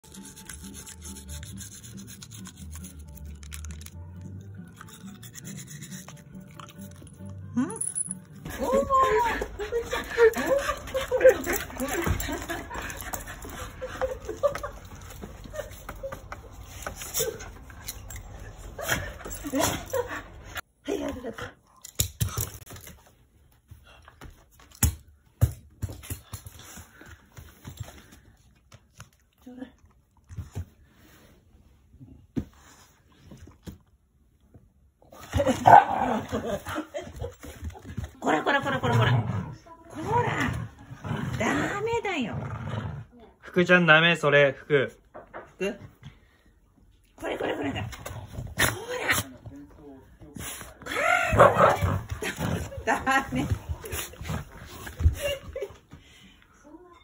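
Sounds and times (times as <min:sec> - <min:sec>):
stick scraping dog's teeth: 0:00.0 - 0:07.2
background music: 0:00.0 - 0:15.1.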